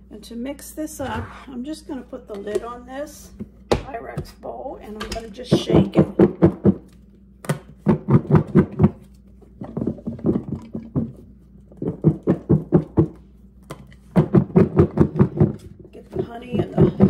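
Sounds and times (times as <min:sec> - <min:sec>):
potato chunks knocking in glass bowl: 0:14.1 - 0:17.0.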